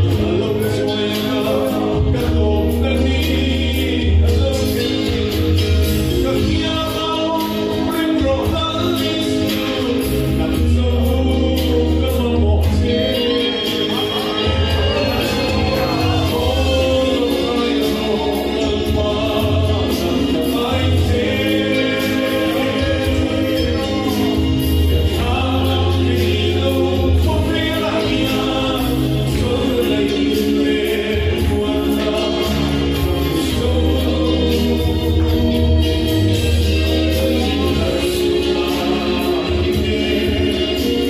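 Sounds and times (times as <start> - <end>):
amplified instrumental accompaniment: 0.0 - 41.0
man singing into a microphone: 0.0 - 41.0.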